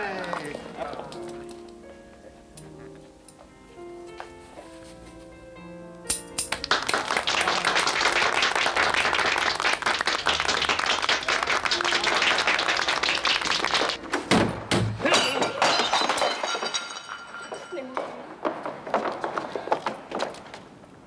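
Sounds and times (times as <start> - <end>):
crowd applauding: 6.5 - 14.0.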